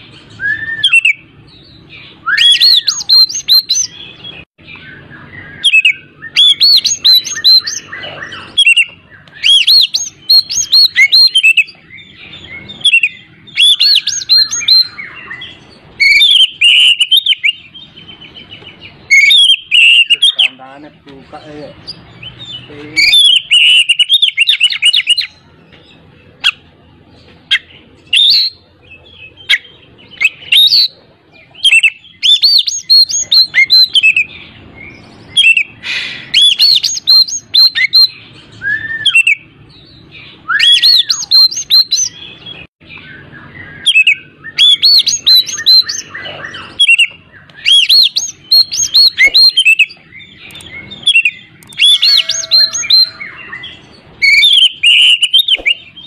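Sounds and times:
bird singing chirps and whistles: 0:00.0 - 0:20.8, 0:21.4 - 0:26.7, 0:27.4 - 0:56.0.

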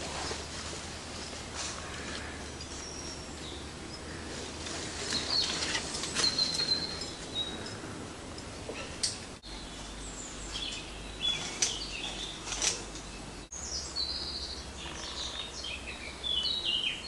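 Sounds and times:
steady background hiss: 0:00.0 - 0:17.0
birds whistling: 0:01.2 - 0:07.9, 0:08.6 - 0:17.0.

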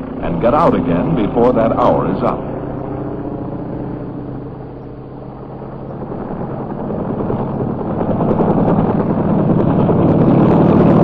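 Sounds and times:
helicopter engine and rotor: 0:00.0 - 0:11.0.

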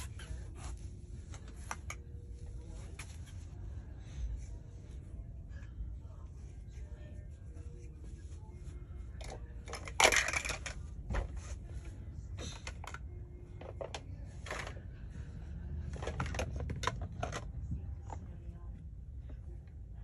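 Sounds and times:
plastic toy blocks clattering: 0:09.2 - 0:10.8.

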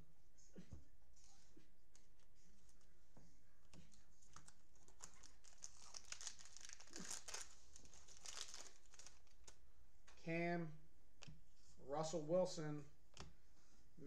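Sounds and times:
foil wrapper crinkling: 0:04.4 - 0:09.5.

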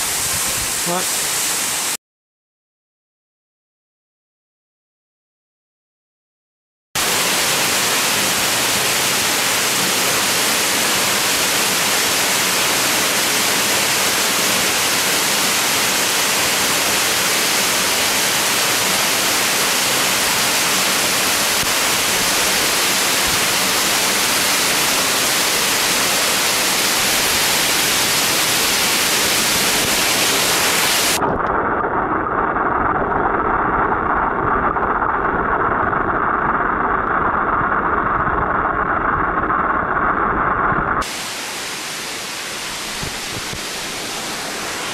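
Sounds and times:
waterfall rushing: 0:00.0 - 0:02.0, 0:07.0 - 0:31.2, 0:41.0 - 0:44.9.

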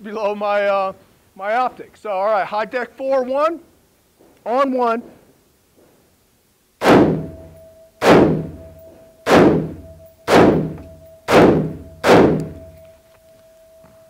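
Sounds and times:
rifle shots: 0:06.8 - 0:12.7.

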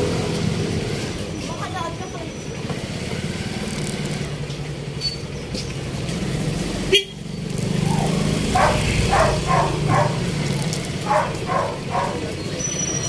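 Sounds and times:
street traffic rumble: 0:00.0 - 0:13.0
dog barking: 0:07.8 - 0:12.4.

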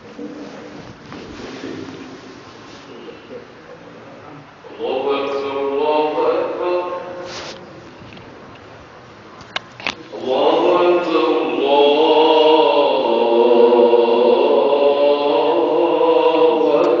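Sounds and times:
man chanting call to prayer: 0:04.6 - 0:07.4, 0:10.1 - 0:17.0.

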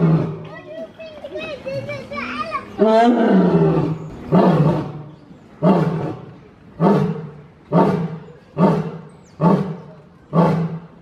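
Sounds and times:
lion roaring: 0:02.8 - 0:11.0.

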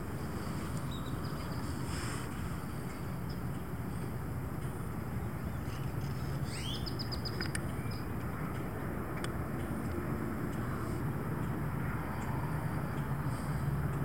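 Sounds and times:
bird song: 0:00.4 - 0:02.0, 0:05.1 - 0:08.6
faint clicks: 0:07.0 - 0:10.7.

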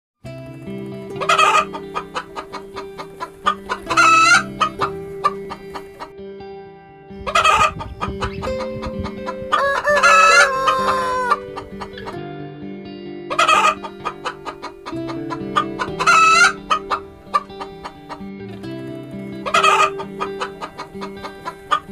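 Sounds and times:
background music: 0:00.2 - 0:21.9
chickens clucking: 0:01.2 - 0:06.1, 0:07.3 - 0:12.2, 0:13.3 - 0:18.3, 0:19.3 - 0:21.9
roosters crowing: 0:09.5 - 0:11.5.

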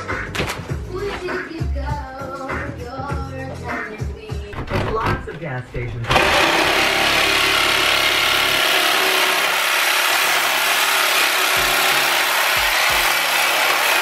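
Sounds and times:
reciprocating saw cutting: 0:06.1 - 0:14.0.

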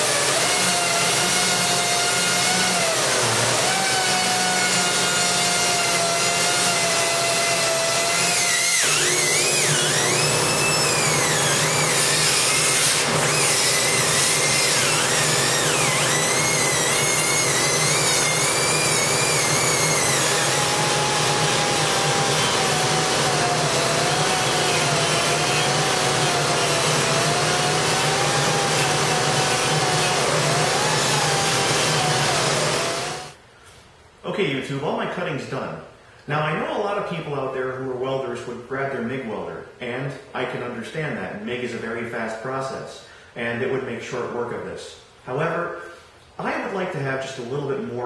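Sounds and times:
grinder cutting sheet steel: 0:00.0 - 0:33.4.

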